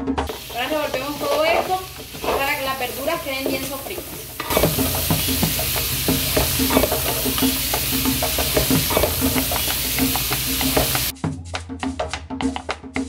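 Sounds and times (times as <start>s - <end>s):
vegetables sizzling in fat: 0.0s - 11.1s
utensil scraping and knocking pot: 0.9s - 11.1s.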